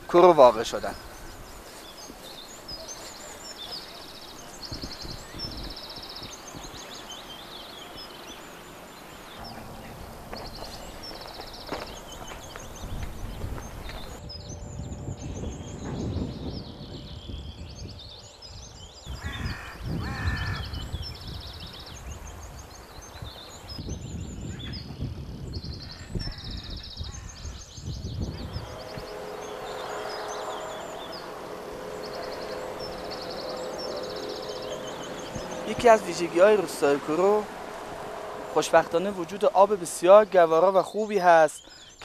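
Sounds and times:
harsh bird calls: 0:00.0 - 0:42.0
small birds chirping: 0:00.0 - 0:42.0
low uneven rumble: 0:00.6 - 0:40.9
steady hum: 0:01.0 - 0:16.3, 0:28.2 - 0:40.9.

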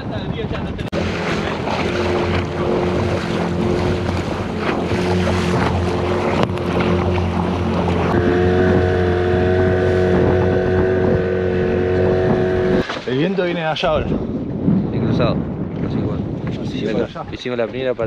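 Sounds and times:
wind on microphone: 0:00.0 - 0:18.0
hull slapping choppy water: 0:00.1 - 0:18.0
outboard motor running: 0:00.9 - 0:12.9
water splashing: 0:00.9 - 0:14.0.

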